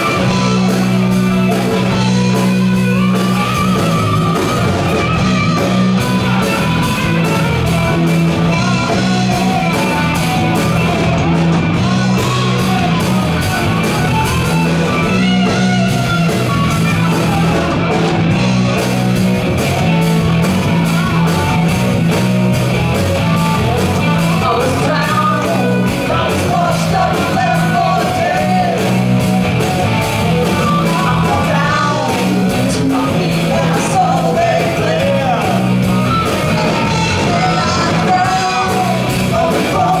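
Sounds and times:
live rock band playing: 0.0 - 40.0
person singing: 23.7 - 29.0, 30.4 - 35.8, 36.4 - 40.0.

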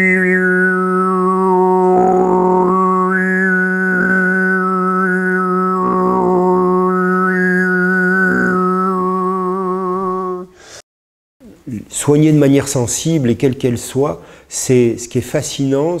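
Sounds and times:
whistling overtones: 0.0 - 9.2
man overtone singing drone: 0.0 - 10.6.

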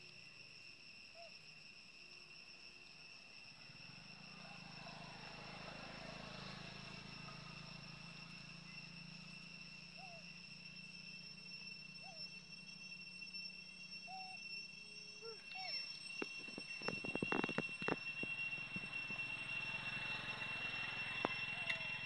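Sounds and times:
high-pitched insect drone: 0.0 - 22.0.

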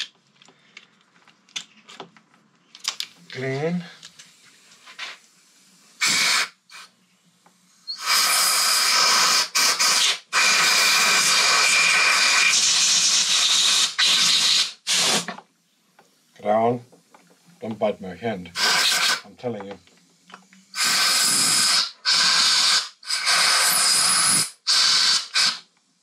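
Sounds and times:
compressed air blow gun blasting: 5.9 - 6.9, 7.8 - 15.4, 18.6 - 19.3, 20.7 - 25.7.

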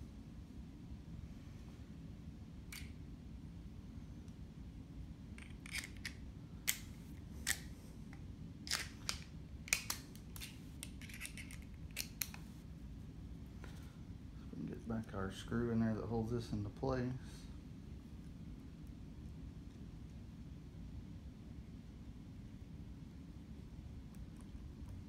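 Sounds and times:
steady low hum: 0.0 - 25.0
sharp clicks and clinks of parts: 5.4 - 7.7, 8.7 - 12.4.

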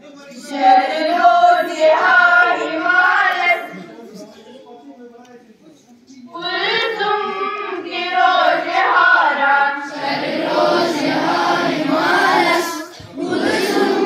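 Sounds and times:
children singing in unison: 0.4 - 3.8, 6.4 - 14.0.

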